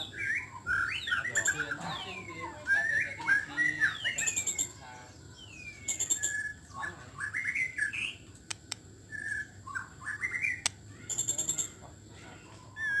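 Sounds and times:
bird singing whistled phrases: 0:00.0 - 0:08.3, 0:09.0 - 0:11.8, 0:12.4 - 0:13.0
high ticking bird chatter: 0:00.0 - 0:13.0
bird sharp clicks: 0:08.3 - 0:08.9, 0:10.5 - 0:11.4.

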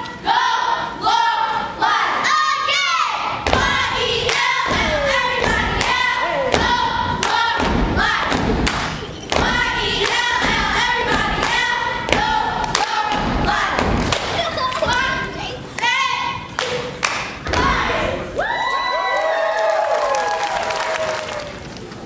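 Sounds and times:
hand claps: 0:08.3 - 0:10.2, 0:16.6 - 0:17.7.

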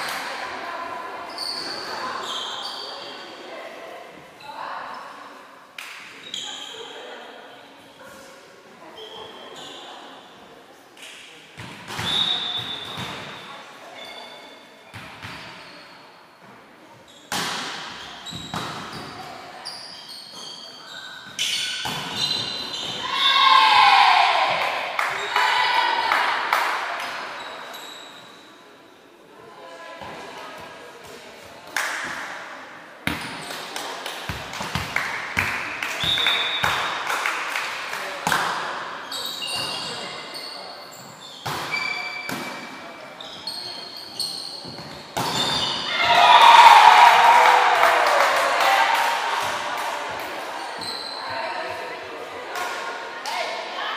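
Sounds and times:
shoe squeak: 0:01.3 - 0:03.2, 0:06.2 - 0:07.0, 0:09.0 - 0:09.9, 0:12.0 - 0:13.1, 0:14.0 - 0:14.6, 0:17.1 - 0:17.3, 0:18.0 - 0:23.1, 0:27.4 - 0:28.5, 0:39.0 - 0:45.9, 0:50.6 - 0:51.4.

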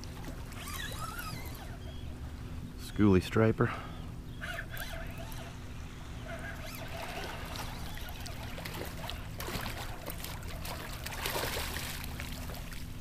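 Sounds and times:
fish splashing at water surface: 0:06.6 - 0:12.9.

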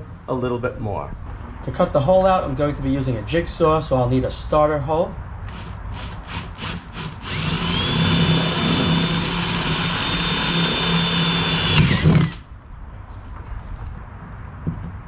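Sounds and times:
cordless drill whining: 0:05.5 - 0:12.5
drill bit rasping: 0:05.5 - 0:12.5.

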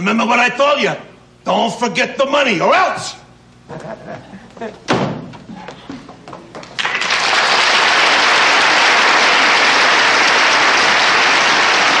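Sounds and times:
audience applauding: 0:06.6 - 0:12.0.

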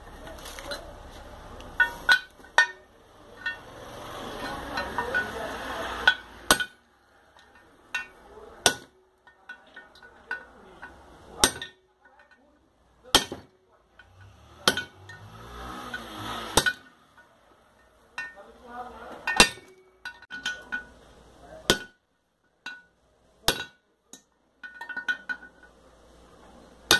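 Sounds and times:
rustling handling noise: 0:00.0 - 0:02.6.

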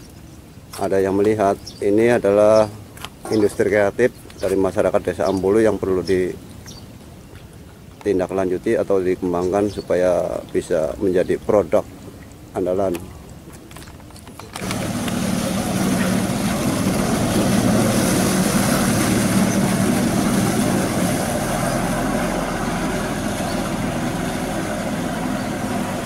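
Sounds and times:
jet ski engine humming: 0:14.4 - 0:26.0.

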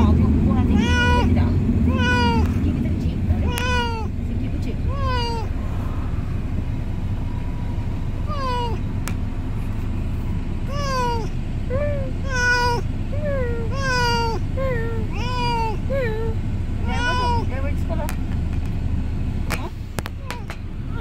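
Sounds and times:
steady low rumble: 0:00.0 - 0:21.0
cat meowing: 0:00.7 - 0:01.3, 0:01.9 - 0:02.5, 0:03.4 - 0:04.1, 0:04.9 - 0:05.5, 0:08.3 - 0:08.8, 0:10.7 - 0:11.3, 0:12.2 - 0:12.8, 0:13.6 - 0:17.5.

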